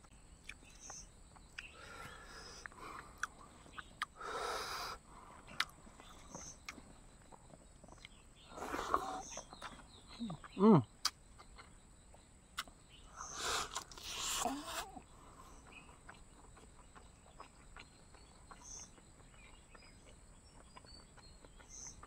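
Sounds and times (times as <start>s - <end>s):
eating rice and pork by hand: 0.0s - 22.0s
wet mouth clicks and chewing: 0.4s - 1.8s, 2.5s - 4.2s, 5.4s - 12.8s, 13.6s - 15.0s, 15.6s - 22.0s.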